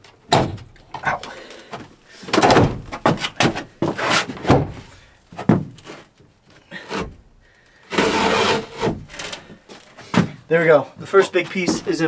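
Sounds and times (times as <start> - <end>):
wooden knocks and thuds: 0.3 - 6.2, 8.0 - 9.4, 10.0 - 10.4, 11.4 - 12.0
wooden panel scraping slide: 7.9 - 9.3.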